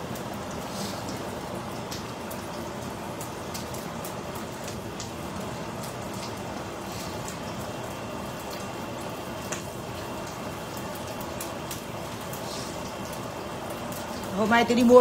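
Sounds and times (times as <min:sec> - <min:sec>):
fish sizzling in hot oil: 0:00.0 - 0:15.0
small pops and crackles: 0:09.4 - 0:12.4.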